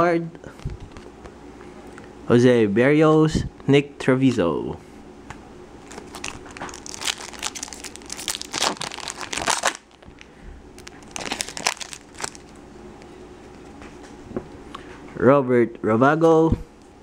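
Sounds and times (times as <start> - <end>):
foil wrapper crinkling: 5.8 - 12.6.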